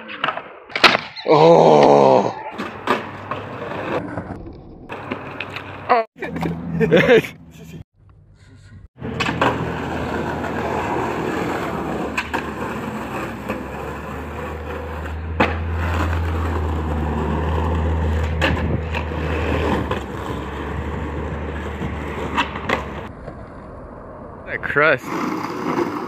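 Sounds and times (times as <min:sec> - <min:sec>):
skateboard wheels rolling on concrete: 0:00.0 - 0:07.3, 0:09.0 - 0:26.0
skateboard clacking on ground: 0:09.0 - 0:16.6, 0:17.7 - 0:23.5.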